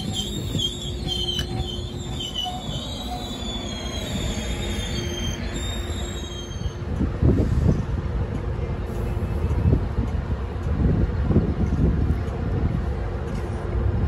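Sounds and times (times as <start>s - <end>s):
train wheels squealing on rails: 0.0s - 8.0s
train rumble: 0.0s - 14.0s.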